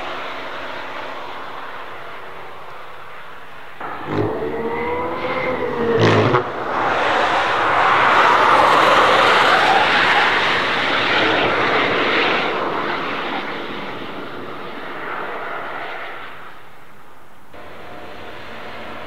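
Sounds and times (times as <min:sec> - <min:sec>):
car passing with tyre and wind rush: 0:00.0 - 0:19.0.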